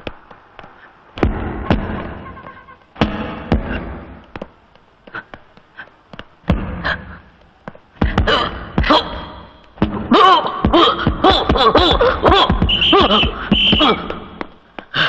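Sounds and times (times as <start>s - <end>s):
punches thudding: 0.0s - 2.2s, 3.0s - 4.6s, 6.4s - 7.1s.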